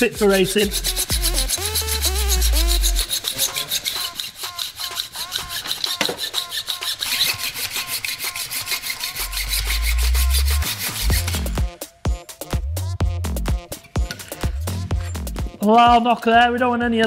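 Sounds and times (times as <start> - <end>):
hacksaw cutting metal tube: 0.0 - 11.7.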